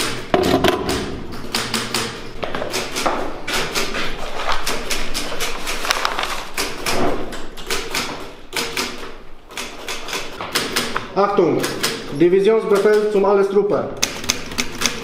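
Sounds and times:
sharp clicks and clacks: 4.6s - 13.2s, 14.0s - 15.0s.

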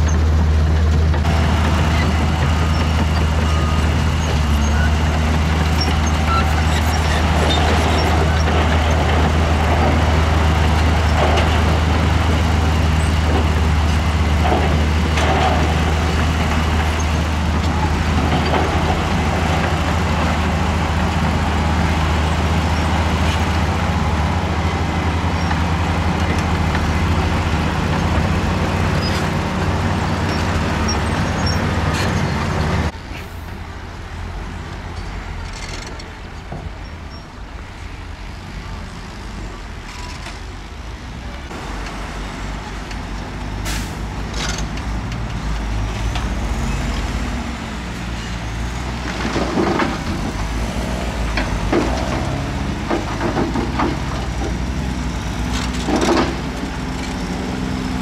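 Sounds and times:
diesel truck engine running: 0.0s - 37.6s, 40.6s - 58.0s.

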